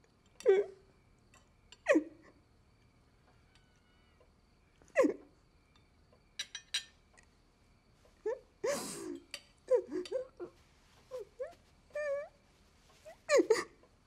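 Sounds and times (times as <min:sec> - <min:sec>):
person crying: 0:13.2 - 0:13.8.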